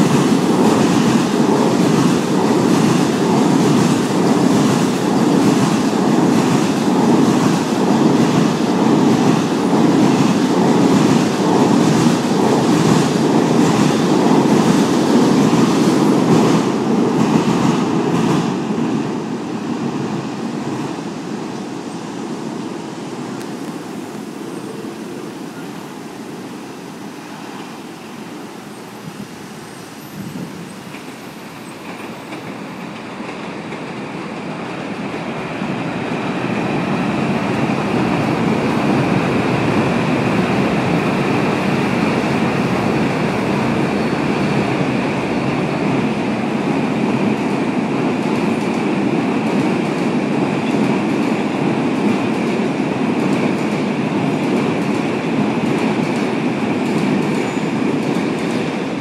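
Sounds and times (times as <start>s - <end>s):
train rumbling over bridge: 0.0s - 59.0s.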